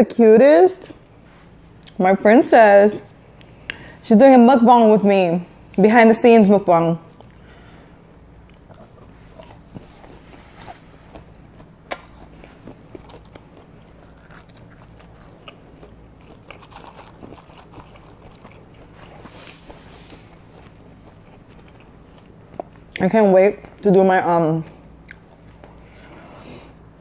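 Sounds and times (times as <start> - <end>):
low steady hum: 0.0 - 27.0
person chewing food: 7.2 - 23.0, 24.7 - 26.8.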